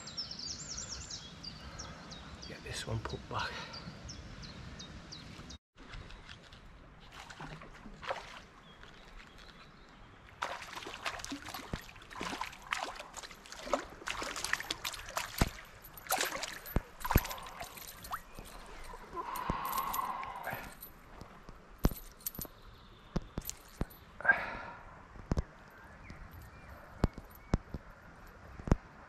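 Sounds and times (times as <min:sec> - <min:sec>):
water splashing: 0:07.0 - 0:22.5
fish thrashing water: 0:07.1 - 0:09.6, 0:10.3 - 0:22.4.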